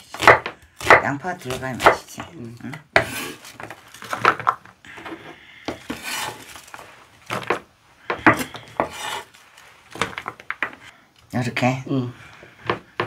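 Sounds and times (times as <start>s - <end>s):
knife scraping cutting board: 3.0s - 3.6s, 5.7s - 6.6s, 8.2s - 9.4s.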